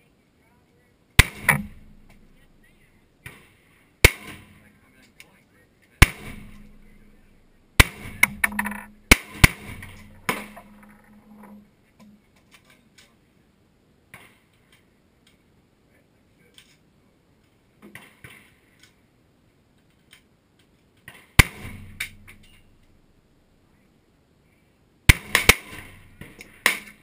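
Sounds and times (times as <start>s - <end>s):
pistol shots: 1.2s - 2.6s, 4.0s - 4.5s, 6.0s - 10.9s, 21.4s - 22.8s, 25.1s - 27.0s.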